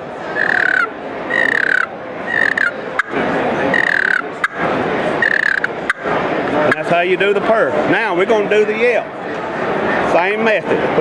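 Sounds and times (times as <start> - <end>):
turkey call raspy purr: 0.4 - 3.1.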